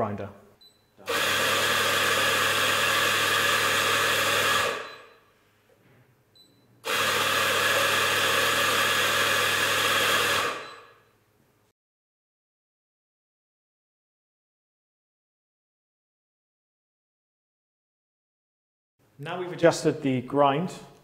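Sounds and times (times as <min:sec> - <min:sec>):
coffee grinder grinding beans: 0:01.0 - 0:04.9, 0:06.9 - 0:10.6.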